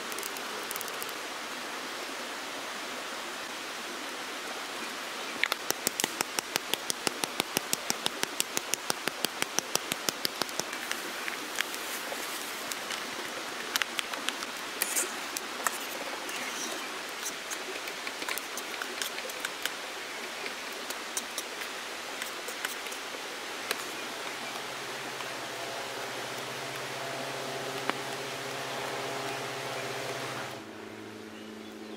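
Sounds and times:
campfire crackling: 0:00.0 - 0:01.2, 0:05.4 - 0:29.0
low steady hum: 0:09.4 - 0:31.9.

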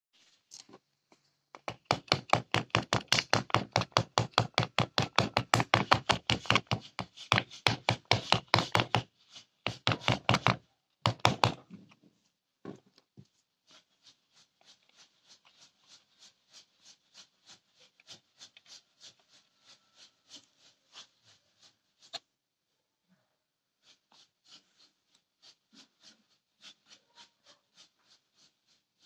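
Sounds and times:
fast tapping on plastic: 0:01.6 - 0:09.1, 0:09.7 - 0:11.7.

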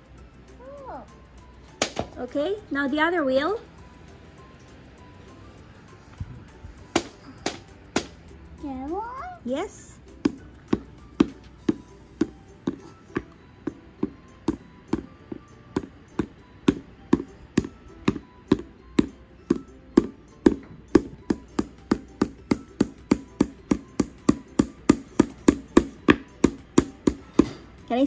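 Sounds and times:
hammer tapping wooden wheel: 0:12.2 - 0:27.6.

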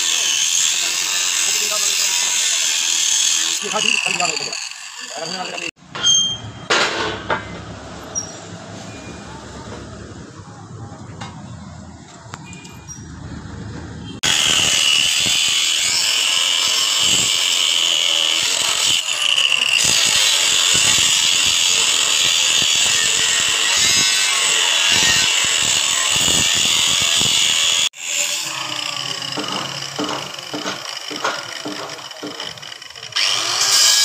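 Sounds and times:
uneven grinding sound: 0:00.0 - 0:06.2, 0:14.2 - 0:34.0
angle grinder cutting steel: 0:00.0 - 0:06.4, 0:14.2 - 0:34.0.

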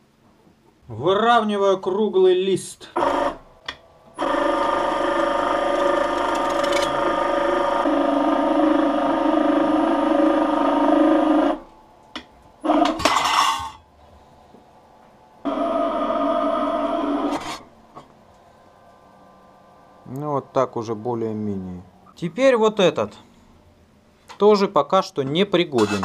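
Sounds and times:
sheet-metal rolls whining: 0:03.0 - 0:20.6.

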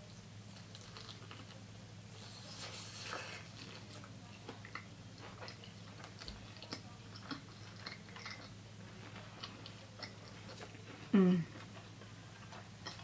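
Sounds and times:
steady low hum: 0:00.0 - 0:13.0
chewing mouth clicks and smacks: 0:00.6 - 0:01.6, 0:04.5 - 0:08.6.

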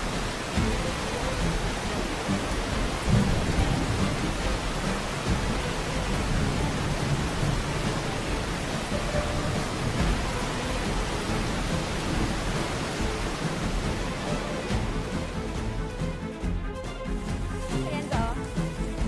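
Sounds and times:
heavy rain on a car: 0:00.0 - 0:15.8
low rumbling thunder: 0:02.5 - 0:12.6.

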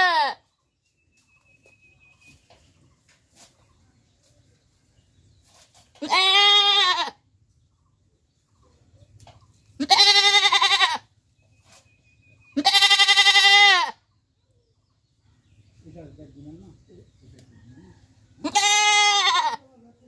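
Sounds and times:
goat bleating: 0:00.0 - 0:00.5, 0:06.0 - 0:07.2, 0:09.8 - 0:11.1, 0:12.6 - 0:14.0, 0:18.4 - 0:19.7.

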